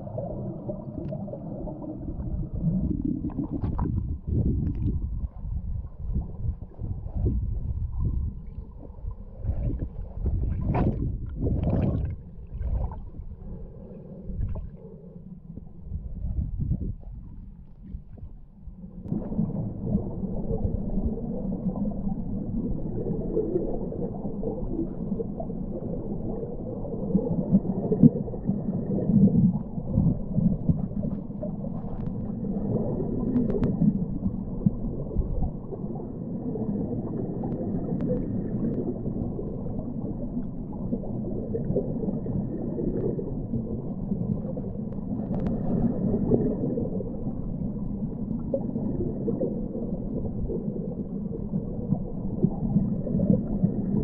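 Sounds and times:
muffled underwater river rush: 0.0 - 54.0
faint clicks: 33.2 - 33.9, 37.4 - 38.9.

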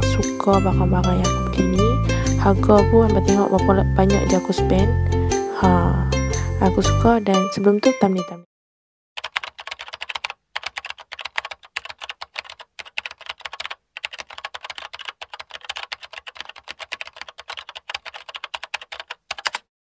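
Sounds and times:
rapid keyboard typing clicks: 9.2 - 19.7.

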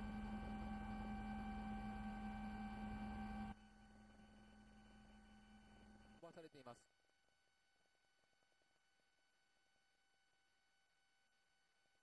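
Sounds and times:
helicopter cabin hum: 0.0 - 6.2.

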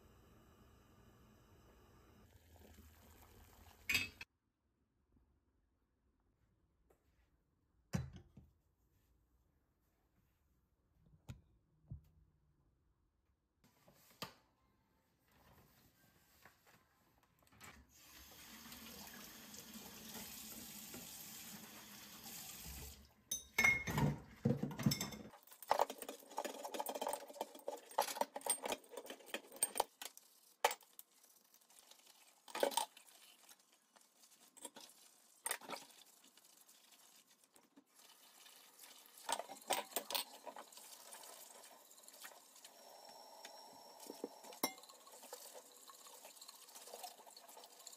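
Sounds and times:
glass jars clinking: 3.9 - 4.3, 23.3 - 29.9, 39.2 - 40.6
tap water running into sink: 18.0 - 23.0, 37.8 - 42.8, 43.4 - 47.9.

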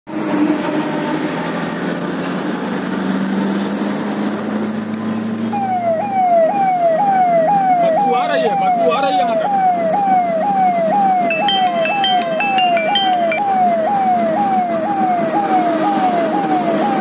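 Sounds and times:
vehicle engine and road noise: 0.1 - 17.0
electronic siren: 5.5 - 17.0.

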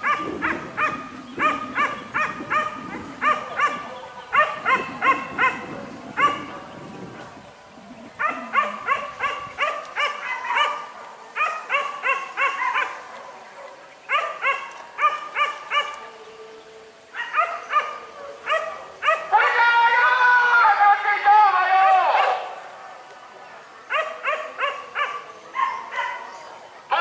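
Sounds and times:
dogs yelping: 0.0 - 6.8, 8.0 - 16.0.

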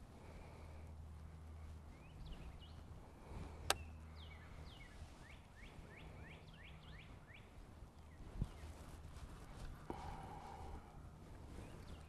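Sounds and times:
faint low hum: 0.0 - 12.0
bird chirping: 1.3 - 2.9, 3.7 - 8.9.

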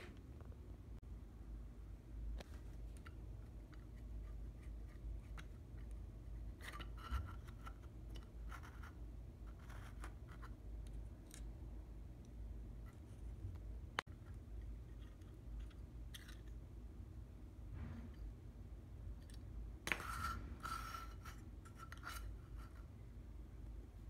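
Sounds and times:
low background rumble: 0.0 - 6.7.

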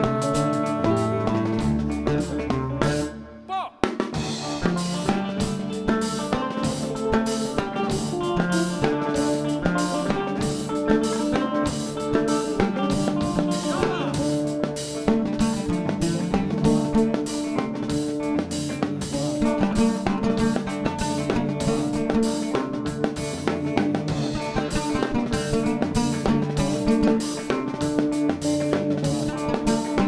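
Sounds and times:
electric guitars: 0.0 - 30.0
live band music: 0.0 - 30.0
plucked oud: 4.7 - 14.4, 15.1 - 17.8, 19.4 - 22.8, 24.2 - 27.8, 29.1 - 30.0.

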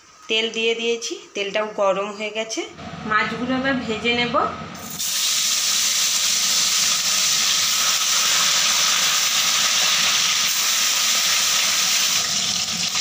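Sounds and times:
fish sizzling in hot oil: 4.8 - 13.0.

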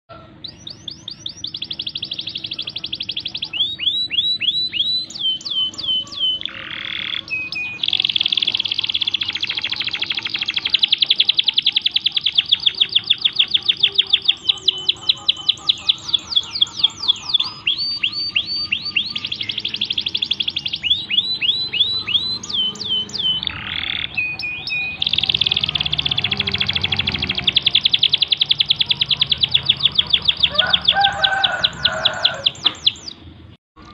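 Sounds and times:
canary singing trills: 0.1 - 33.4.

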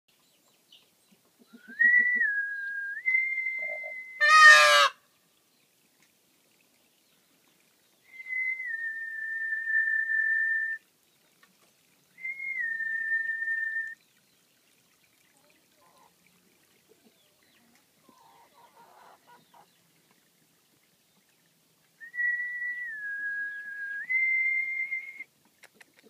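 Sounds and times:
long steady whistle: 1.8 - 4.3, 8.1 - 10.8, 12.2 - 14.0, 22.0 - 25.3
peacock call: 3.5 - 5.0.

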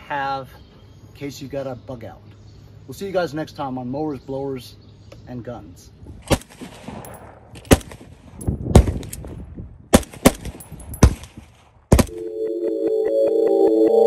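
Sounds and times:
rifle shots with echo: 6.3 - 9.2, 9.9 - 12.2
synthesizer music: 12.1 - 14.0.

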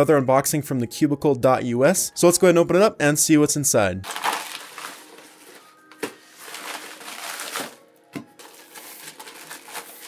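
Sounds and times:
quiet background music: 0.0 - 10.0
plastic packaging crinkling: 4.0 - 10.0.

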